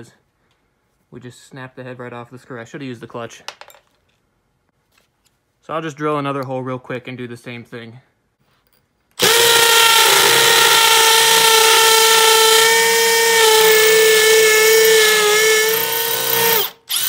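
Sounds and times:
hammer drill boring into concrete: 9.2s - 17.0s.

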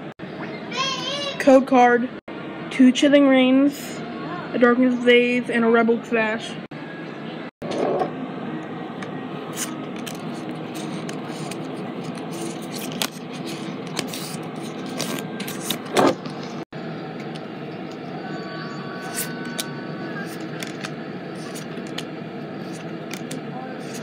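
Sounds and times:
steady background hum: 0.0s - 24.0s
cards sliding out: 9.5s - 16.6s, 19.0s - 24.0s.

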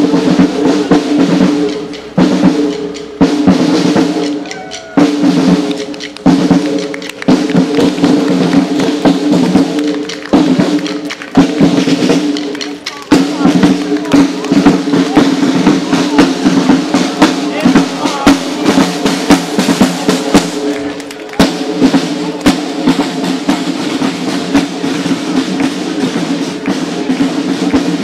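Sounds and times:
marching snare drum rolls: 0.0s - 28.0s
held pitched notes: 4.1s - 6.3s.

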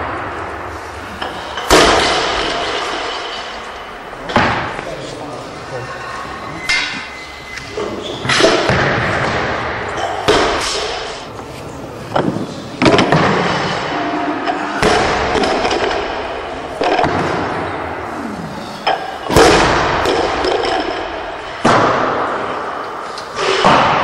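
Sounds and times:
barbells thudding on platform: 1.2s - 3.6s.

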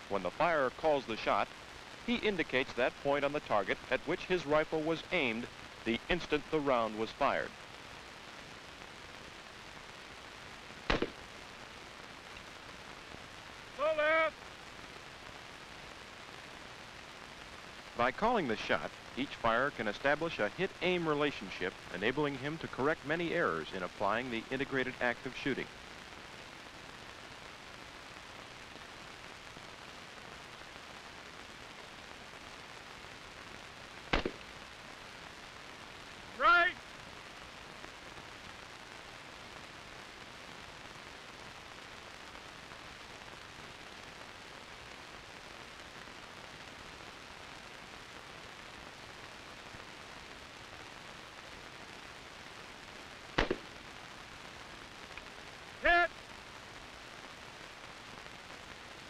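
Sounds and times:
background hiss: 0.0s - 59.0s
rifle shot: 10.9s - 11.2s, 34.1s - 34.5s, 53.4s - 53.8s.

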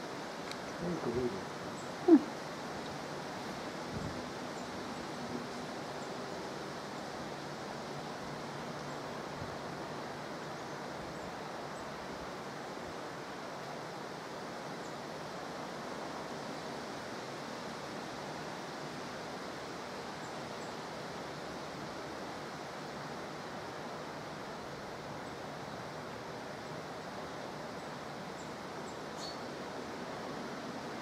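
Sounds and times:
steady background hiss: 0.0s - 31.0s
faint high ticks: 0.4s - 0.7s.

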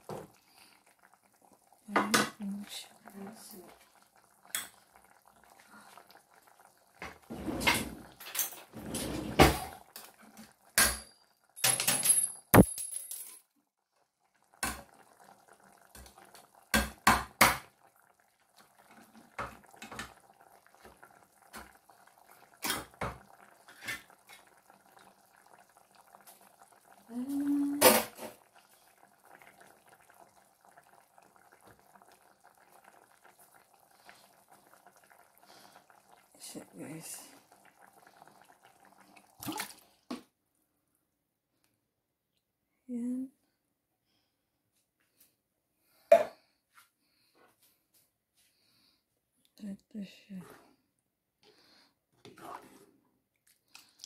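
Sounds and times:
metal cookware clanking and scraping: 7.3s - 9.7s.

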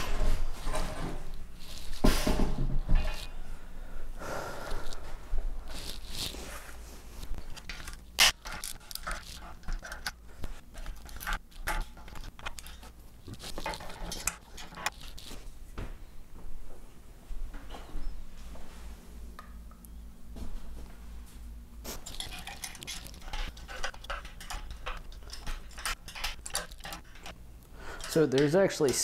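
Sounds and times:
clicks and scrapes of frame parts: 7.2s - 15.4s, 22.0s - 27.4s.

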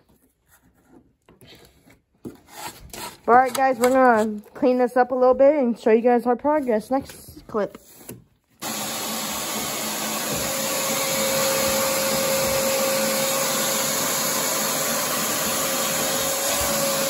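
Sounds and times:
shop vacuum running: 8.6s - 17.0s
vacuum sucking up wood chips: 8.6s - 17.0s.

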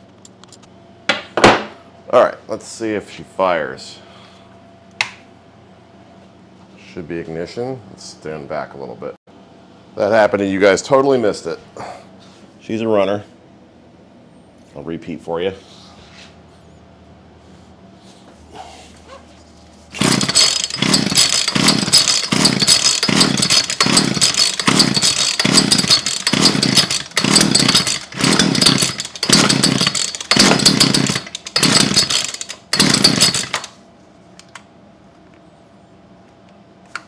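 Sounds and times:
chainsaw engine running unevenly: 20.0s - 33.8s
chainsaw pull start: 20.0s - 33.8s.

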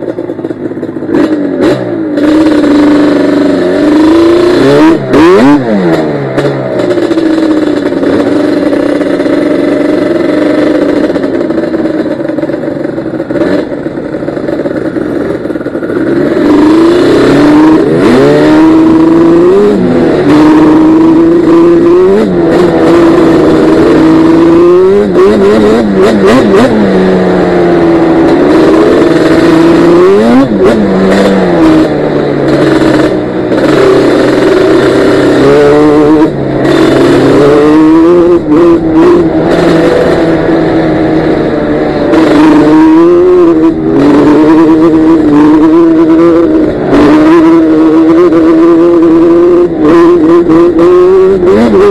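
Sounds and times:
two-stroke engine revving: 0.0s - 51.9s.

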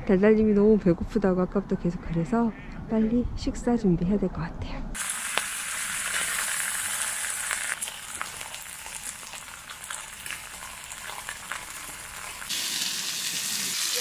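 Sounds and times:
food sizzling in a pan: 5.0s - 14.0s.

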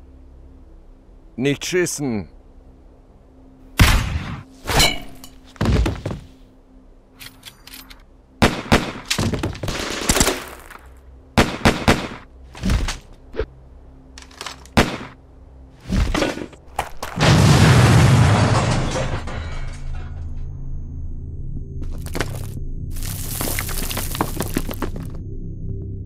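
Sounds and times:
gunfire shots and bursts: 8.4s - 10.7s, 11.4s - 13.0s, 14.7s - 15.2s.

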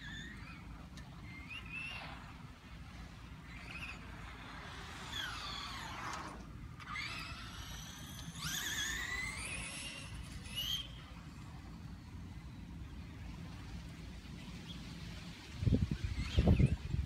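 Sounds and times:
electric motor whining: 3.4s - 11.4s.

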